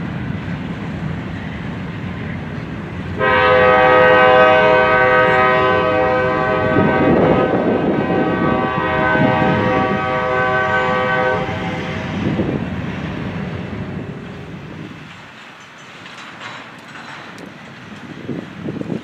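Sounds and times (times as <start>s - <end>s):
train cars rumbling past: 0.0s - 19.0s
locomotive air horn blast: 3.2s - 12.6s.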